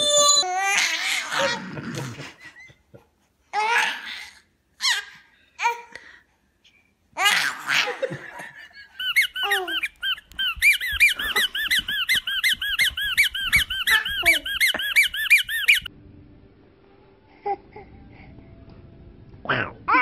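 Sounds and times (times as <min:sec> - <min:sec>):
baby laughing: 0:00.0 - 0:05.1, 0:07.2 - 0:15.8
rubber squeeze toy squeaking: 0:09.0 - 0:15.9.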